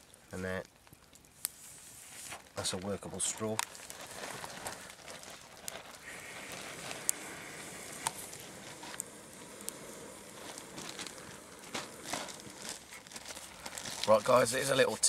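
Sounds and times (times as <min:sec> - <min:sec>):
fire crackling: 0:00.0 - 0:15.0
air blowing through tube: 0:05.9 - 0:14.2.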